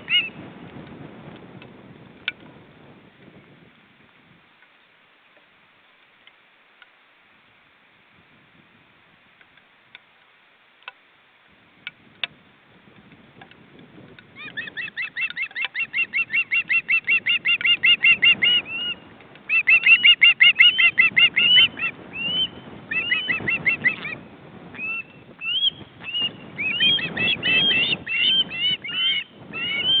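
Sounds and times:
ospreys whistled chirps: 14.4s - 24.2s, 24.8s - 30.0s.

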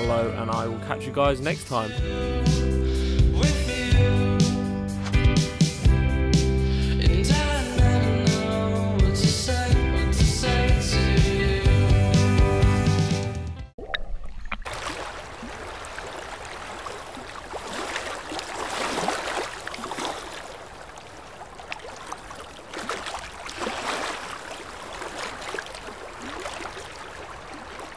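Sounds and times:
small waves sloshing: 13.9s - 27.9s.

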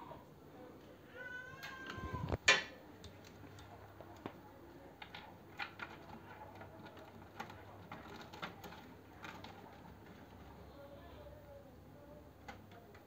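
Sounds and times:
light clicks and rustles of cables: 3.0s - 10.8s, 12.3s - 13.0s.

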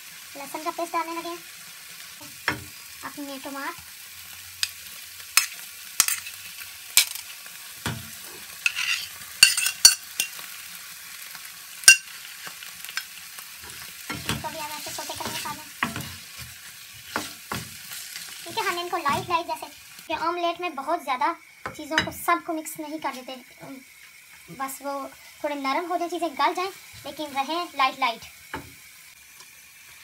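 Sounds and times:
food sizzling in oil in a pan: 0.0s - 30.0s
wooden spoon scraping a pan: 8.0s - 9.8s, 13.6s - 19.5s.

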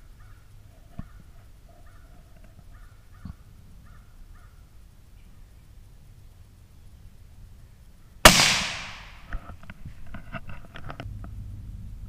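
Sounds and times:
crows cawing: 0.2s - 4.6s.

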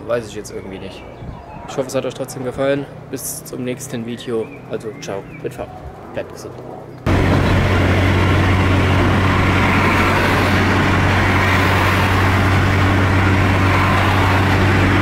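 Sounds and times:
road and wind noise: 0.0s - 15.0s
car engine drone: 5.6s - 15.0s.

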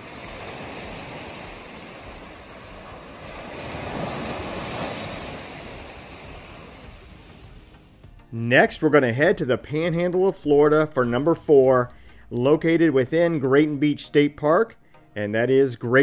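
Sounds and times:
ocean surf breaking on beach: 0.0s - 8.0s.

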